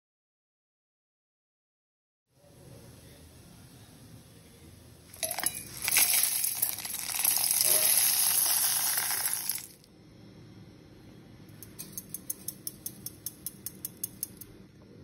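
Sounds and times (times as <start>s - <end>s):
seeds rattling into metal jar: 5.1s - 9.9s.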